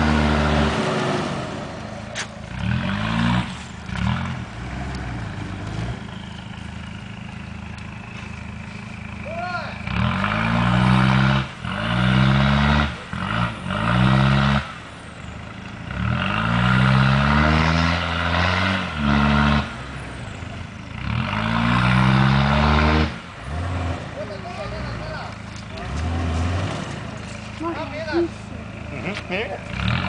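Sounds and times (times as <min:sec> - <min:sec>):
engine revving hard: 0:00.0 - 0:01.7, 0:02.5 - 0:06.1, 0:09.8 - 0:14.8, 0:15.9 - 0:19.9, 0:21.0 - 0:27.1, 0:29.6 - 0:30.0.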